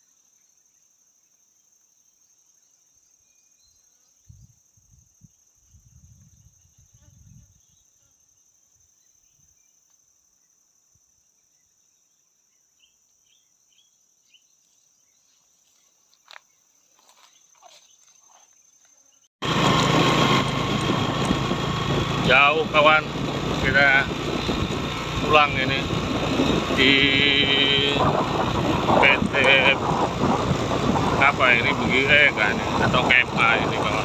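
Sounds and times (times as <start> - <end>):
low thumps: 19.4 - 34.0.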